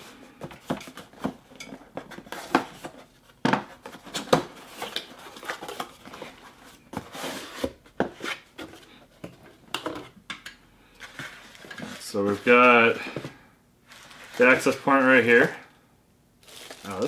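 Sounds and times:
cardboard flaps scraping and rustling: 3.7s - 8.9s.

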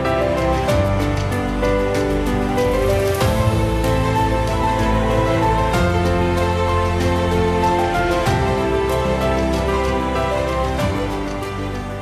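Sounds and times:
background music sustained chords: 0.0s - 12.0s.

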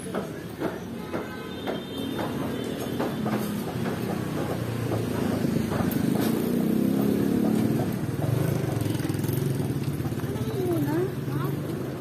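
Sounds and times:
busy street noise: 0.0s - 12.0s
motorcycle engine running: 4.4s - 12.0s.

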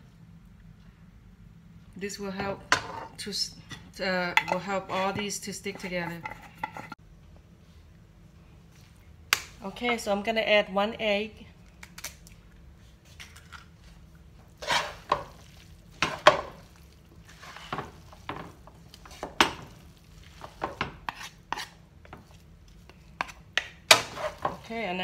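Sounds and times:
utensils scraping a wok: 2.6s - 7.0s, 14.6s - 25.0s.

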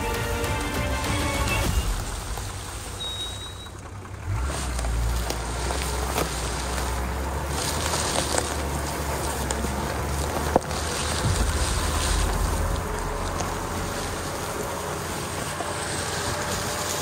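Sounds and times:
diesel engine running: 0.0s - 17.0s
wind on microphone: 11.0s - 15.4s.

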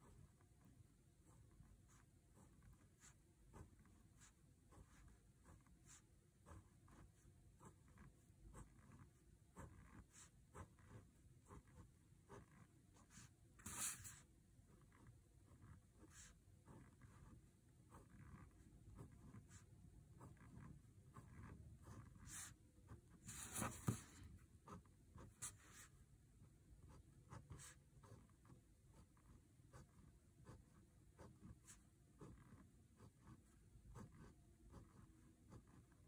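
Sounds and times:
pen scratching on paper: 0.0s - 36.0s
paper rustling: 23.3s - 24.3s.

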